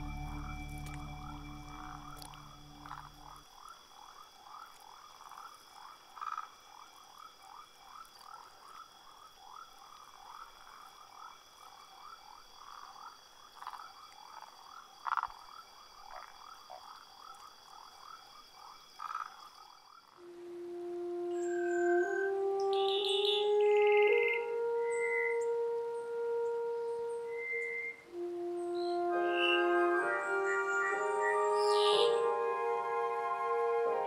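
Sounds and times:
steady high-pitched tones: 0.0 - 3.4
frogs croaking: 0.0 - 34.0.

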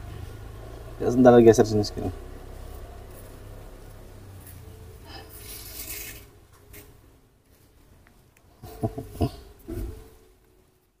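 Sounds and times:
low steady rumble: 0.0 - 10.6
faint rustling and scraping: 2.4 - 8.3.

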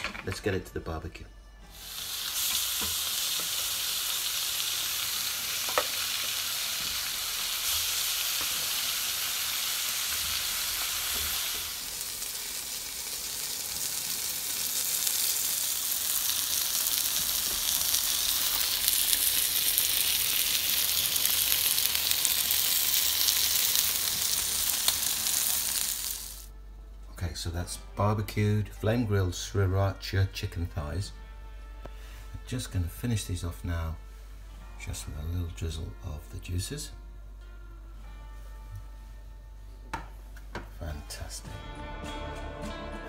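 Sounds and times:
chicken sizzling on grill: 1.7 - 26.5.

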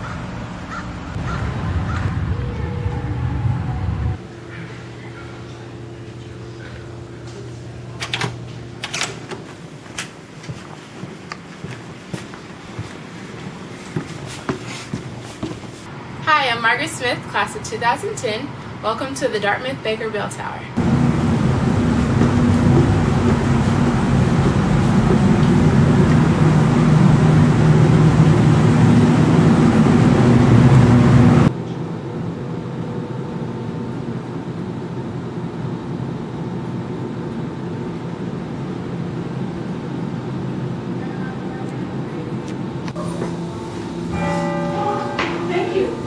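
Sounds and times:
loud rumbling with low hum: 0.0 - 8.9, 20.7 - 46.0
steady background noise: 0.0 - 46.0.

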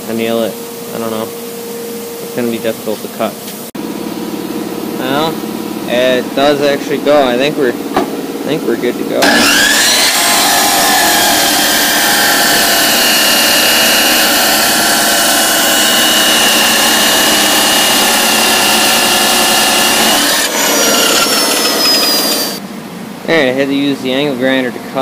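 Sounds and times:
chop saw grinding steel: 9.2 - 22.6
saw motor winding down: 9.2 - 22.6.

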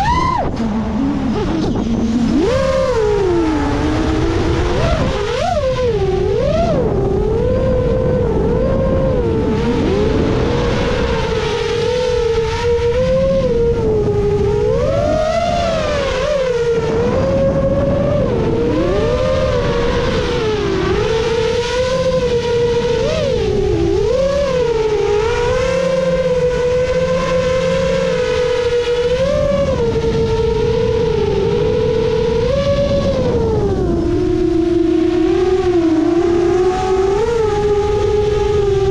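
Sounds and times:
drone motors whining: 0.0 - 38.9
wind and prop wash: 0.0 - 38.9.

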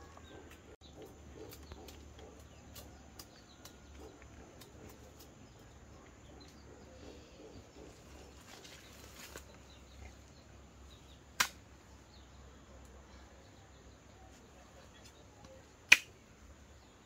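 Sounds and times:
sharp click: 15.9 - 16.1.

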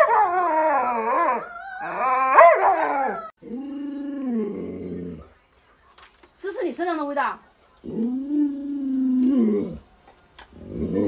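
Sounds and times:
dog howling: 0.0 - 5.2.

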